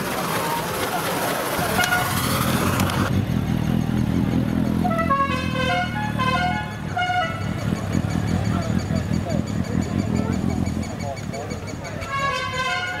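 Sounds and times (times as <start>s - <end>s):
car engine running: 0.0s - 12.4s
musical car horn tune: 1.7s - 2.3s, 4.8s - 7.6s, 12.0s - 13.0s.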